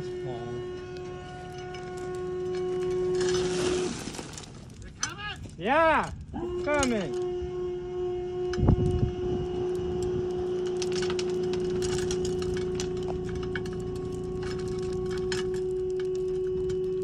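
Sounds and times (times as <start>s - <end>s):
hydraulic pump whining: 0.0s - 17.0s
dirt and stones tumbling: 1.0s - 7.0s, 9.5s - 17.0s.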